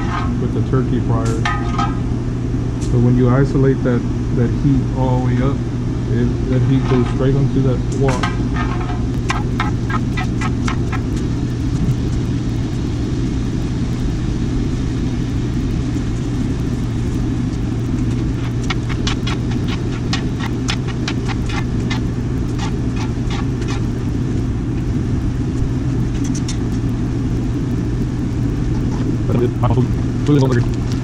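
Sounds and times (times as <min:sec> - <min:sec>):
utensil scraping and tapping wok: 0:00.0 - 0:00.5, 0:06.6 - 0:11.3, 0:18.0 - 0:24.0
gas burner rushing: 0:00.0 - 0:31.0.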